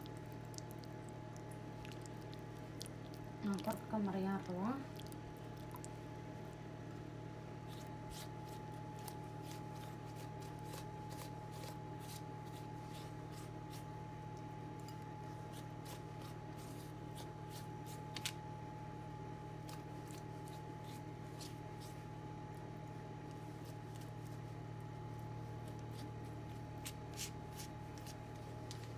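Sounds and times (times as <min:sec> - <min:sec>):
steady hum: 0:00.0 - 0:28.9
pastry brush dabbing dough: 0:07.6 - 0:18.4, 0:23.0 - 0:28.9.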